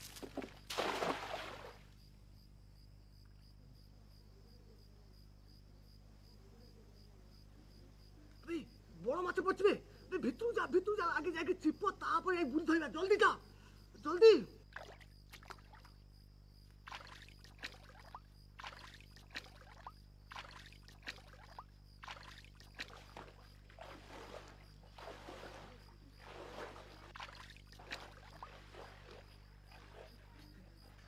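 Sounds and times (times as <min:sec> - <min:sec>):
pond water splashing: 0:00.0 - 0:02.0, 0:14.6 - 0:16.0, 0:16.8 - 0:31.0.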